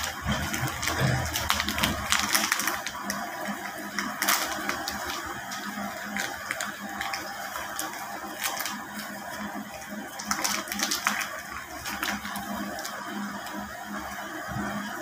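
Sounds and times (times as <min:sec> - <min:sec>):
plastic bag crinkling: 0:00.0 - 0:14.2
steady mechanical hum: 0:00.0 - 0:15.0.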